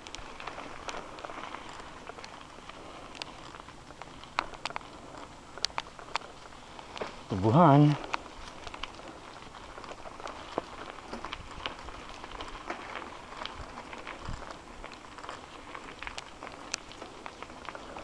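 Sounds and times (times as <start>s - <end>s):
bike clicking and rattling: 0.0s - 18.0s
tyres hissing on dirt: 0.0s - 18.0s.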